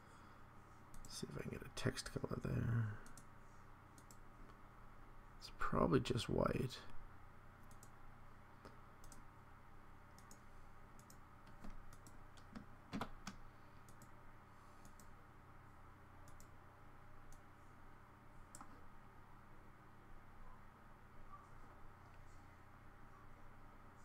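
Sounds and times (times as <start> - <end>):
low steady hum: 0.0 - 24.0
computer mouse clicks: 0.9 - 1.2, 3.0 - 3.3, 3.9 - 4.6, 7.6 - 8.0, 8.6 - 9.3, 10.1 - 14.2, 14.8 - 15.2, 16.2 - 16.6, 18.5 - 18.8.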